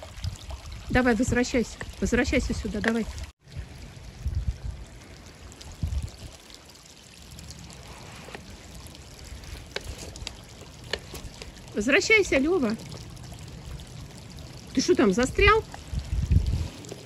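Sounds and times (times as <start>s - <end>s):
stream trickling and babbling: 0.0s - 17.0s
dull low bumps: 15.6s - 17.0s.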